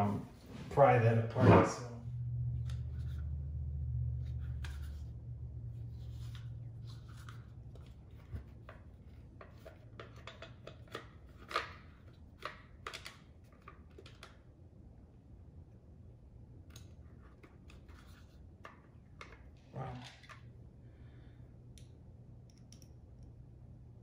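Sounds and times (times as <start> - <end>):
low hum: 0.0 - 9.2.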